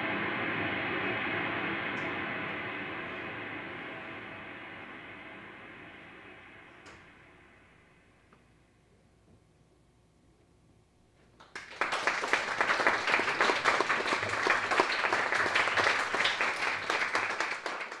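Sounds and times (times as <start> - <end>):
audience applause: 11.4 - 18.0.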